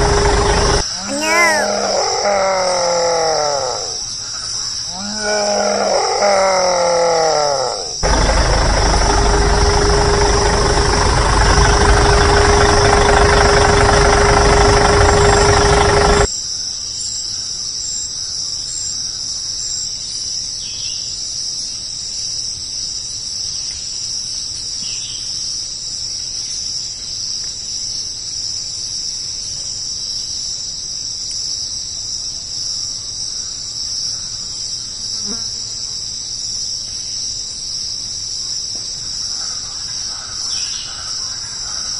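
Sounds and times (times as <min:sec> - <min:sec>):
loud engine-like drone: 0:00.0 - 0:00.8, 0:08.0 - 0:16.3
insects chirring: 0:32.6 - 0:41.9.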